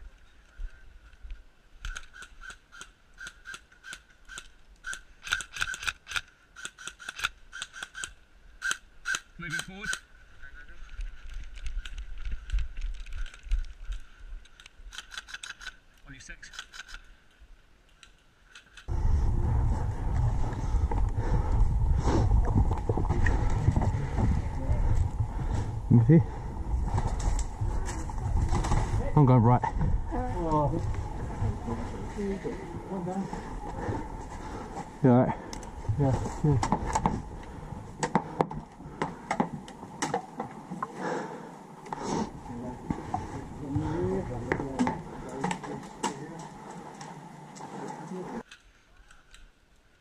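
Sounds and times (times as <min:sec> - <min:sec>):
camera handling noise: 0:01.8 - 0:10.0, 0:11.2 - 0:15.8, 0:16.5 - 0:17.1
wind rumble on microphone: 0:18.9 - 0:34.6
footsteps on wooden boards and mud: 0:20.1 - 0:48.5.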